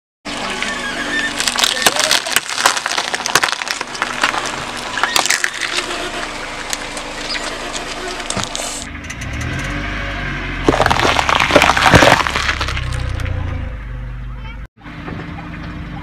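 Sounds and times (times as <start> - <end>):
eggshells cracking and crunching: 1.3 - 5.9, 10.7 - 13.2.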